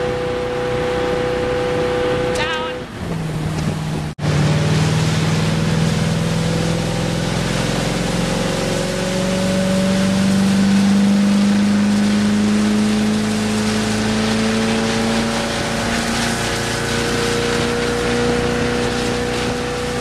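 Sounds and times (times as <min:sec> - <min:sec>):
boat engine droning: 0:00.0 - 0:20.0
rushing water and spray: 0:00.0 - 0:20.0.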